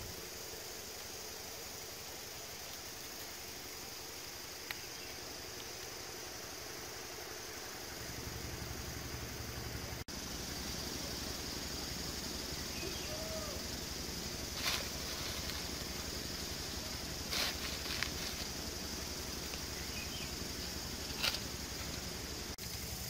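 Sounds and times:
high-pitched insect drone: 0.0s - 23.0s
bare feet scuffing on stones: 17.2s - 18.6s, 21.0s - 22.0s.

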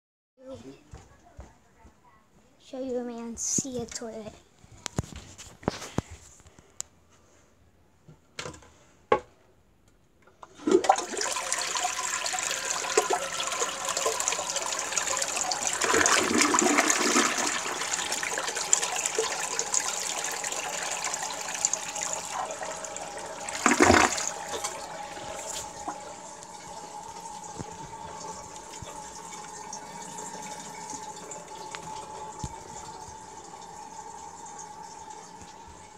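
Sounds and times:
toilet flush clicks: 10.4s - 35.9s
toilet flushing: 10.4s - 35.9s
toilet tank refilling hiss: 10.6s - 35.9s.

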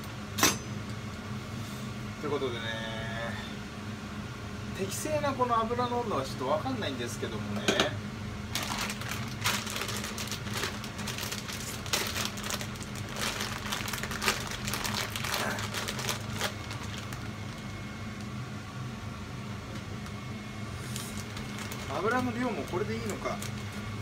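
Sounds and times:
steady low hum: 0.0s - 24.0s
plastic bag crinkling: 8.5s - 18.3s, 20.9s - 23.9s.

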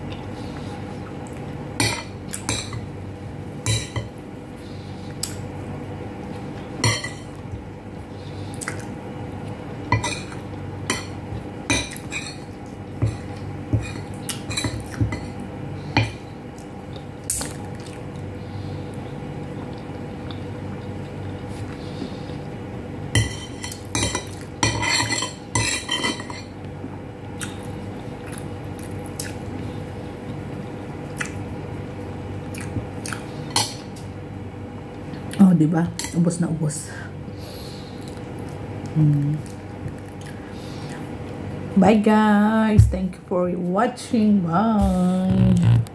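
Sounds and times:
steady low hum: 0.0s - 45.9s
cutlery clinking on ceramic plates: 23.2s - 26.5s.

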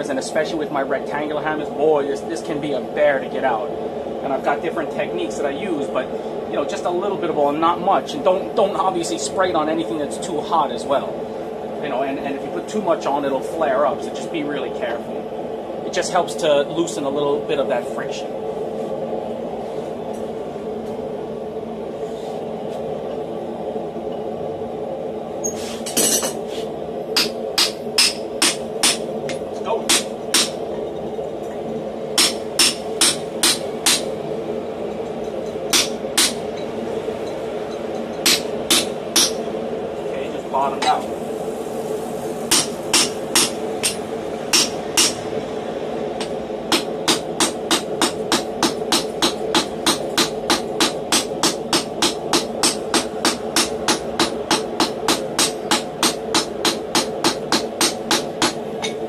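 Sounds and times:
steady low hum: 0.0s - 59.0s
hammer striking metal: 27.2s - 30.6s, 32.2s - 34.1s, 35.7s - 36.4s, 38.2s - 39.4s, 42.5s - 45.2s, 46.2s - 59.0s.

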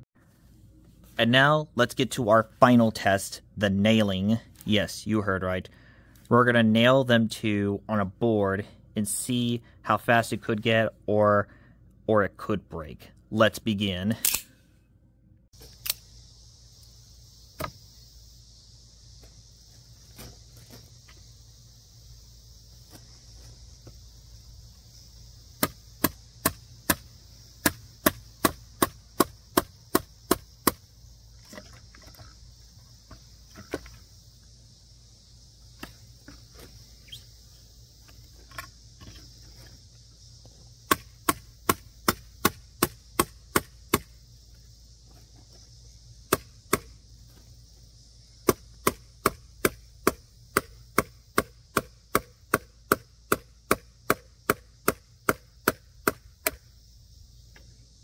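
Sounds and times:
hammer striking nails into wood: 48.5s - 56.6s.

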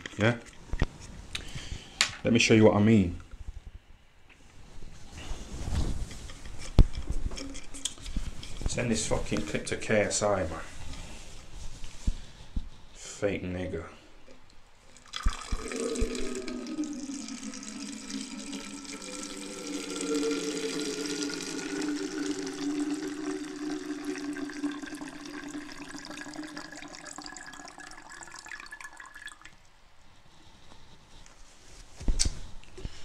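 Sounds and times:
urine stream into plastic bottle: 14.9s - 29.6s.

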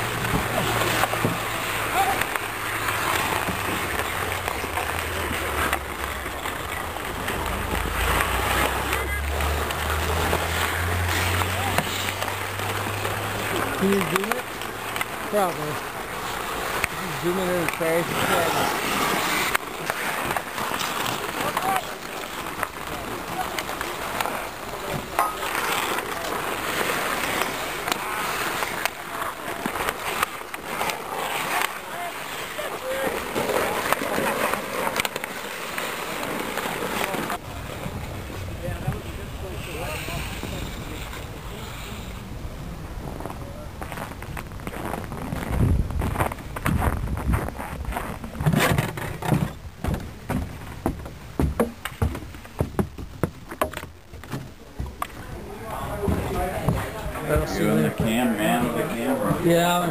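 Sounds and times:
hockey sticks clacking: 0.0s - 37.8s, 43.2s - 59.9s
skate blades scraping ice: 0.0s - 42.3s, 42.9s - 59.9s
footsteps on wooden stairs: 49.2s - 55.0s.

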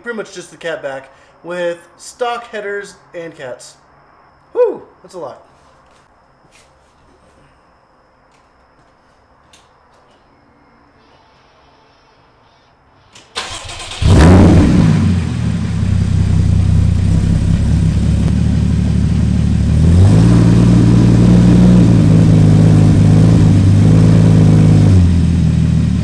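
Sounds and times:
car engine idling: 13.4s - 26.0s.

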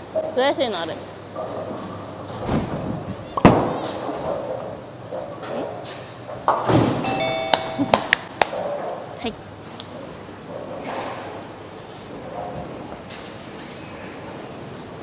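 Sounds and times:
short electronic chime tones: 7.1s - 7.9s.

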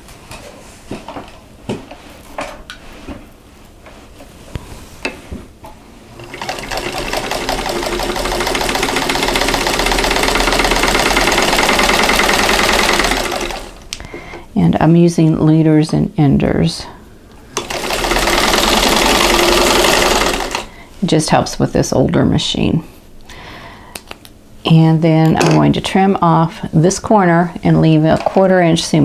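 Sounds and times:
sewing machine stitching: 6.2s - 13.8s, 17.6s - 20.7s.

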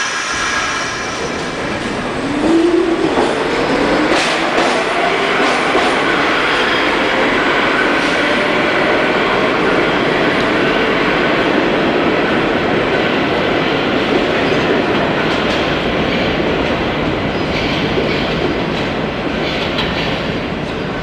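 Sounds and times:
subway train wheels rumbling: 0.0s - 21.0s.

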